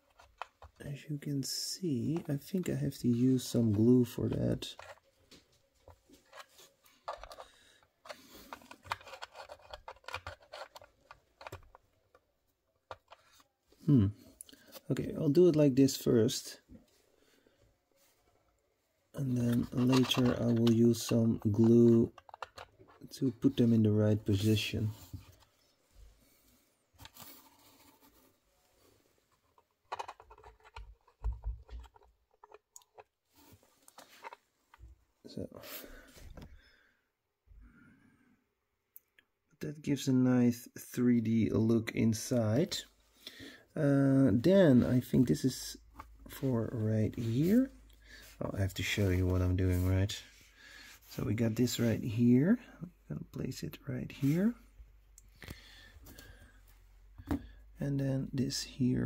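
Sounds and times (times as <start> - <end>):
panels scraping and clicking: 0.0 - 5.1, 5.8 - 13.5, 19.2 - 25.5, 29.2 - 34.8.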